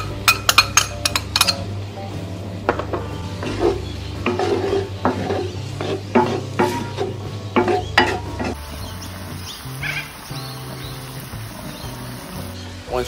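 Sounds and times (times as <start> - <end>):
wooden spoon scraping a skillet: 3.3 - 8.7.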